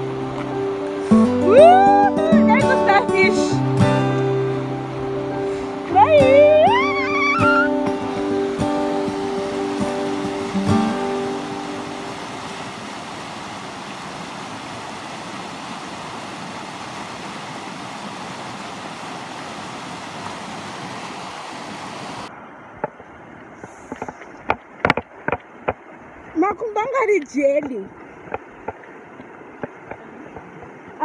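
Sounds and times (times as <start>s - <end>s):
river rapids rushing: 0.0s - 22.9s.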